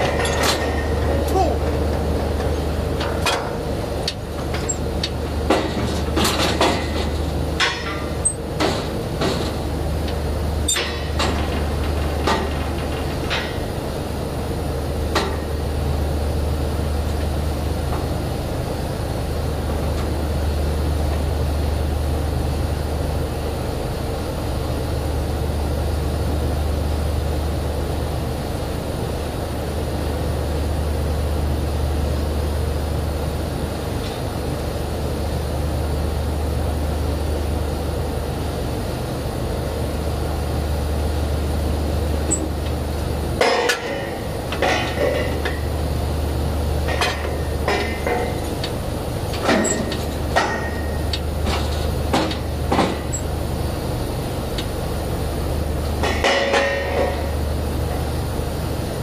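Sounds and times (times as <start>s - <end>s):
metal clanks of drill pipe: 0.0s - 1.8s, 10.6s - 13.8s, 43.4s - 45.7s, 46.9s - 53.3s, 56.0s - 57.4s
drilling rig machinery droning: 0.0s - 59.0s.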